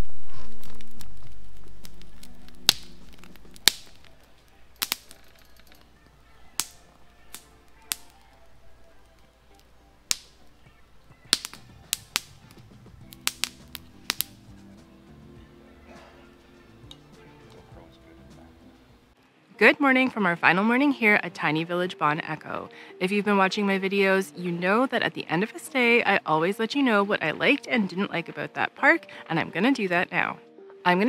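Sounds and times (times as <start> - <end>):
campfire crackling and popping: 0.0 - 18.6
background music: 1.0 - 31.0.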